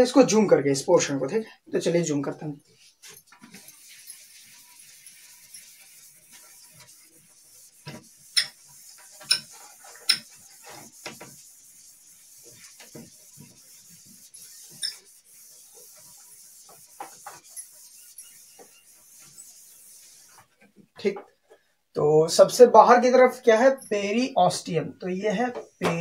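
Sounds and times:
duster rubbing whiteboard: 0:03.0 - 0:20.6.

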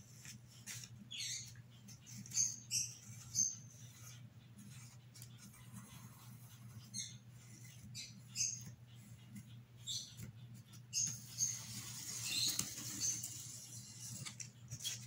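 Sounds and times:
pencil scratching on cardboard: 0:02.0 - 0:09.6.

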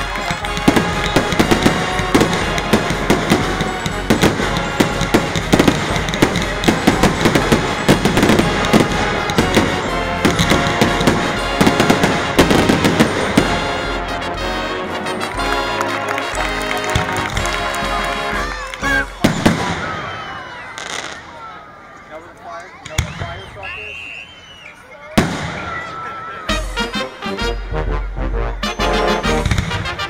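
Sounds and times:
music: 0:00.0 - 0:19.8, 0:26.2 - 0:30.0
fireworks bursting and crackling: 0:00.0 - 0:21.8, 0:25.0 - 0:26.3, 0:29.2 - 0:30.0.

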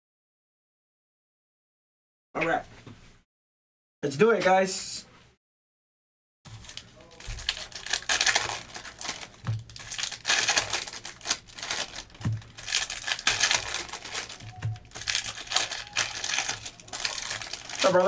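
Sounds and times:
card pack wrappers crinkling and tearing: 0:06.5 - 0:18.0.

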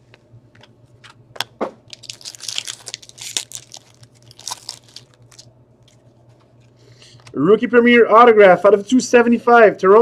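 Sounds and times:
foil wrapper tearing and crinkling: 0:01.9 - 0:06.0.

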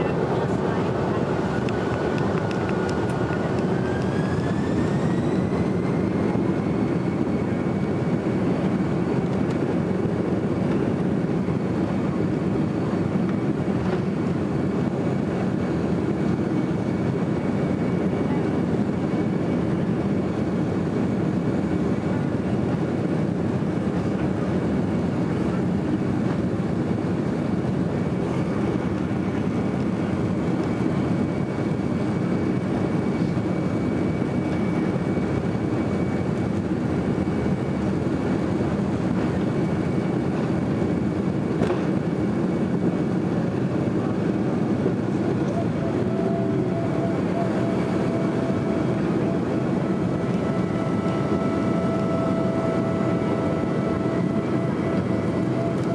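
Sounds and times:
jet engine cabin rumble: 0:00.0 - 0:55.9
faint high whine: 0:44.2 - 0:55.9.

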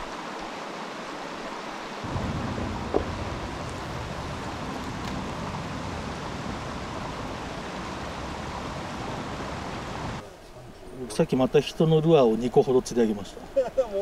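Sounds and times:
stream water rushing: 0:00.0 - 0:10.3.

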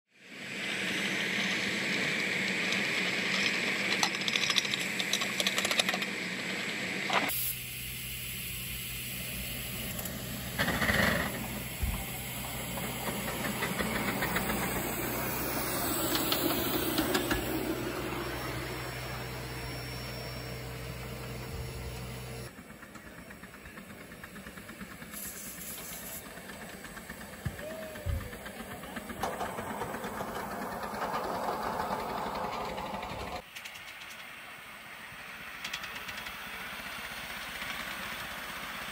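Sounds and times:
model steam locomotive hissing: 0:00.2 - 0:38.9
loud burst of steam: 0:07.3 - 0:19.6, 0:22.8 - 0:33.5.

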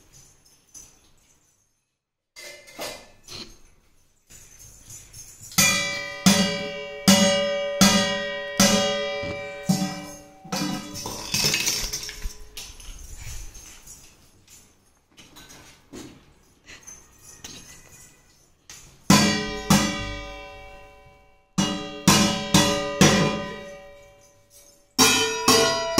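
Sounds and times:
metal pot struck with strainer: 0:05.6 - 0:11.7, 0:21.6 - 0:23.9, 0:25.0 - 0:25.9.

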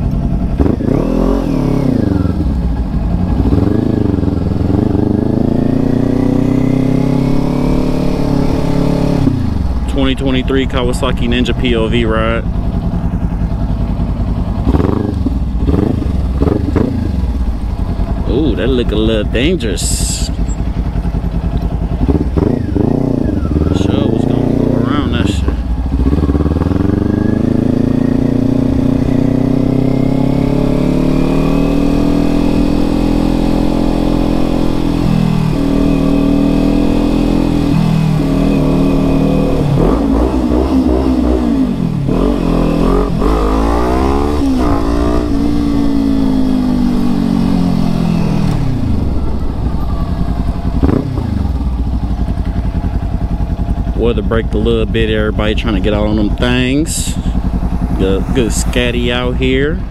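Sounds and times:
motorcycle engine accelerating: 0:00.0 - 0:59.9
wind rumble: 0:39.6 - 0:59.9.

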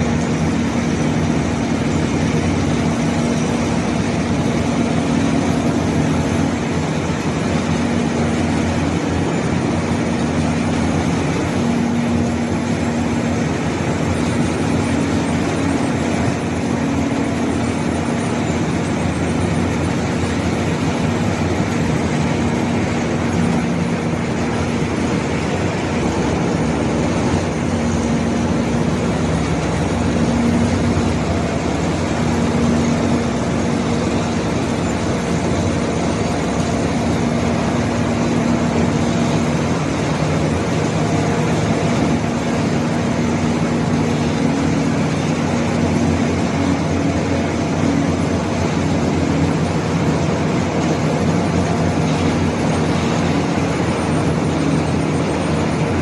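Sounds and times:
heavy diesel machinery droning: 0:00.0 - 0:56.0.

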